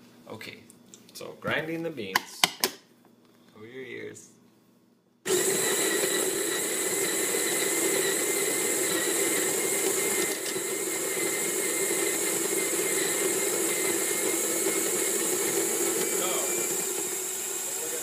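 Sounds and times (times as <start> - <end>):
electric coffee grinder grinding: 5.3 - 18.0.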